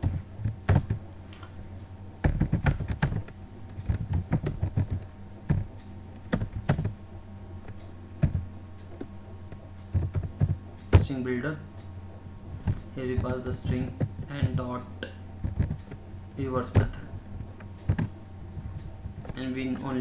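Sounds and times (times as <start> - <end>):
computer keyboard typing: 0.0 - 1.0, 2.2 - 5.7, 6.3 - 7.0, 9.9 - 11.1, 15.4 - 16.0, 16.6 - 18.1
steady low hum: 0.0 - 20.0.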